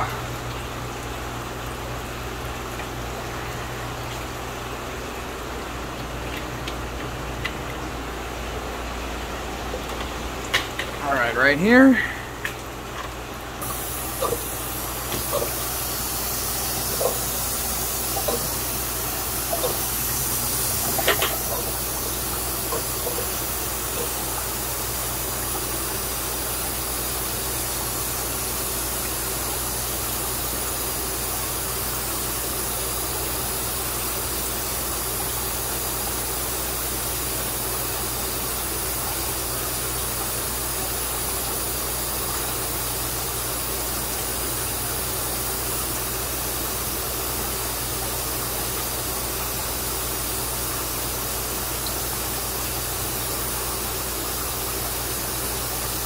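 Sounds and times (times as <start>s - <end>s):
air pump hiss and hum: 0.0s - 56.0s
air stones bubbling: 12.1s - 26.0s.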